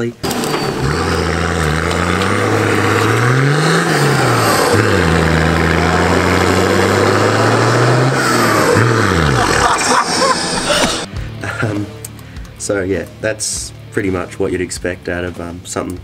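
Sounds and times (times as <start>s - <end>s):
diesel engine under load: 0.2s - 11.1s.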